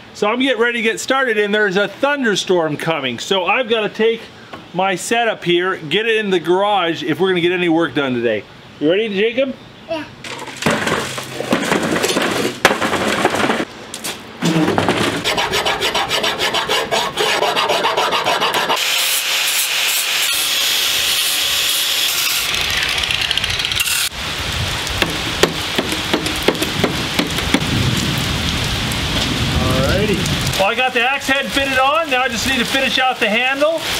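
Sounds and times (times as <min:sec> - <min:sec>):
hand rasp scraping wood: 0:14.4 - 0:20.5
angle grinder whining: 0:18.6 - 0:24.2
rain falling: 0:24.1 - 0:33.9.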